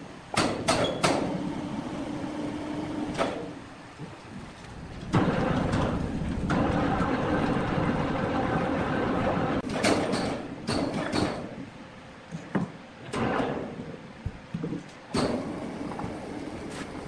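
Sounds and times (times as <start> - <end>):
sawmill machinery rumbling: 0.6 - 11.1, 15.1 - 17.0.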